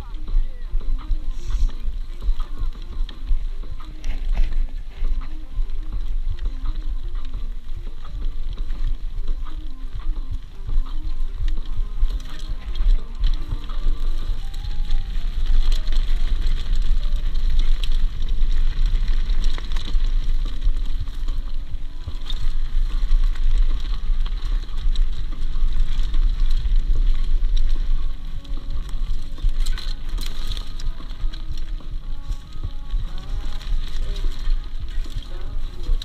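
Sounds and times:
bike rattling: 0:00.0 - 0:36.0
tyres crackling on gravel: 0:00.0 - 0:36.0
wind rumble on microphone: 0:00.0 - 0:36.0.

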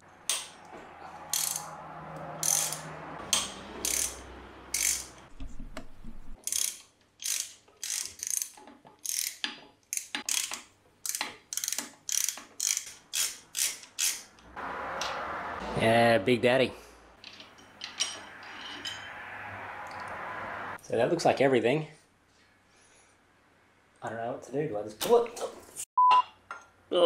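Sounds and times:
ratchet wrench clicking: 0:01.3 - 0:01.8, 0:02.4 - 0:05.2, 0:06.4 - 0:14.4.

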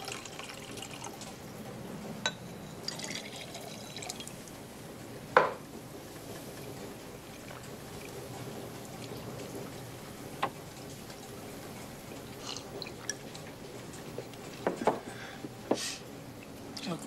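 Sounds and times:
faint steady hum: 0:00.0 - 0:17.0
glasses clinking on wooden table: 0:05.4 - 0:05.6.

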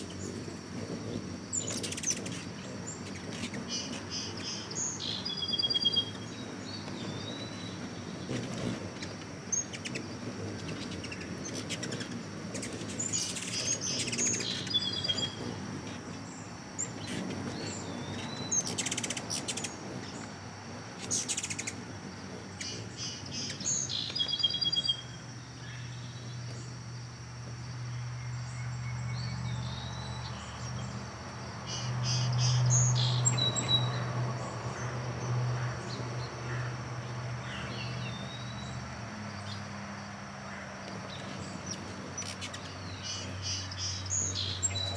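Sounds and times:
hummingbird squeaky chatters: 0:00.0 - 0:16.2, 0:16.8 - 0:20.3, 0:21.0 - 0:25.1, 0:41.2 - 0:44.9
hummingbird chip calls: 0:00.0 - 0:26.8, 0:27.9 - 0:36.8, 0:41.1 - 0:44.9.

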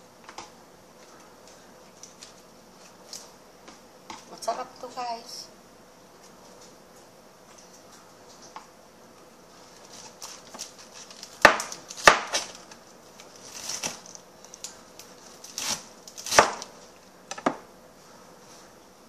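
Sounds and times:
lettuce leaves rustling: 0:09.5 - 0:17.0
knife chopping on plastic board: 0:11.4 - 0:12.5, 0:15.6 - 0:16.7.

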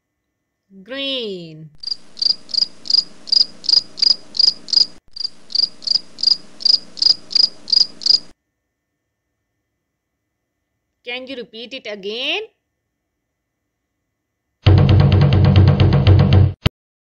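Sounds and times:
cricket chirping: 0:01.8 - 0:10.9.

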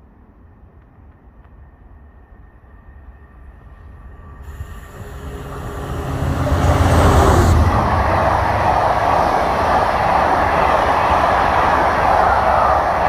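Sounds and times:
passenger train passing at speed: 0:00.0 - 0:13.0.

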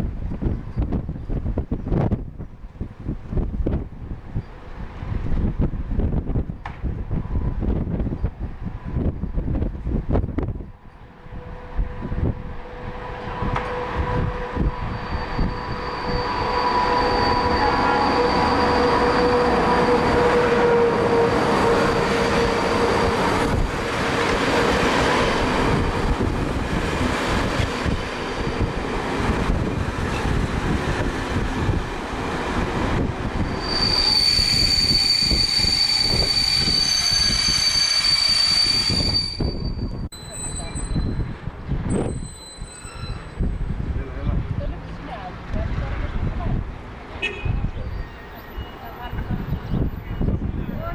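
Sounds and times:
train coaches rolling past: 0:04.1 - 0:50.9
locomotive humming: 0:10.3 - 0:41.3
high squeal of train brakes: 0:13.7 - 0:23.6, 0:33.4 - 0:43.7, 0:47.4 - 0:50.8.

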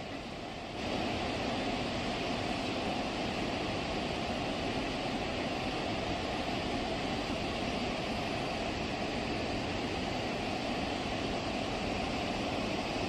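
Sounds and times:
water rushing through spillway: 0:00.0 - 0:13.0.

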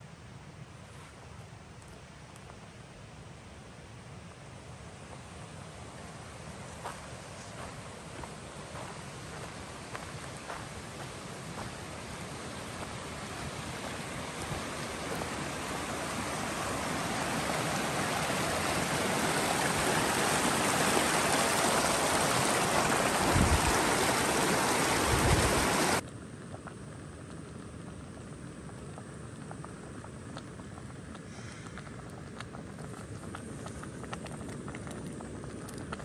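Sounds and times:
stream water rushing: 0:05.0 - 0:26.0.

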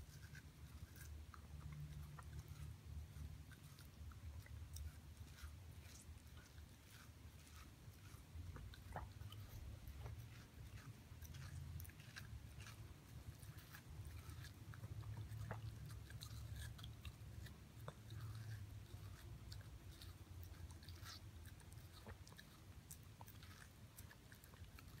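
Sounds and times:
low steady rumble: 0:00.0 - 0:25.0
puppy chewing watermelon: 0:00.0 - 0:25.0.

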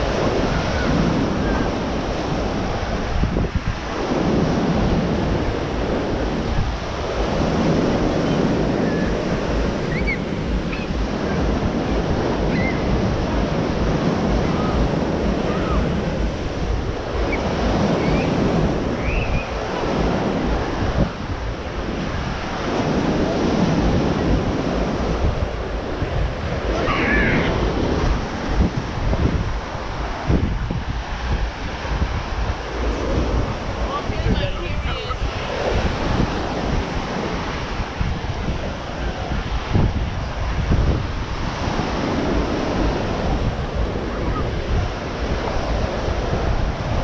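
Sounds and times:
ocean surf breaking on beach: 0:00.0 - 0:47.0
wind buffeting microphone: 0:00.0 - 0:47.0.

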